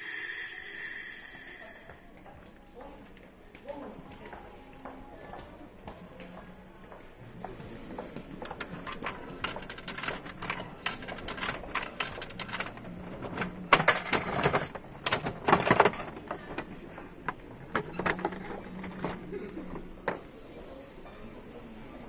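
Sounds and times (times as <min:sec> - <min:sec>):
coins clinking into coin slot: 0:08.8 - 0:12.8.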